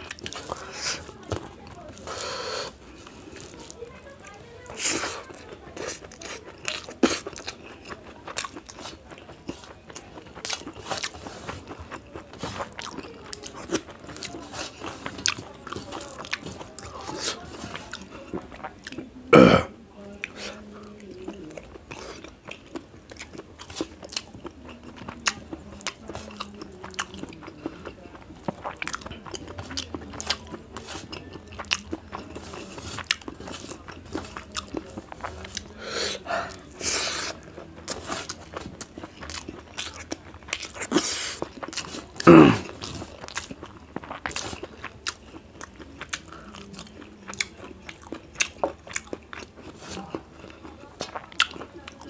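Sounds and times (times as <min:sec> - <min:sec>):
person chewing and crunching: 0:00.0 - 0:52.0
breathy noises: 0:01.9 - 0:03.4, 0:35.2 - 0:37.4.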